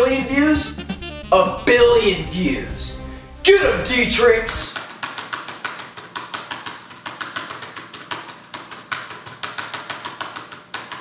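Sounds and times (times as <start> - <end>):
fast laptop keyboard typing: 4.7 - 11.0.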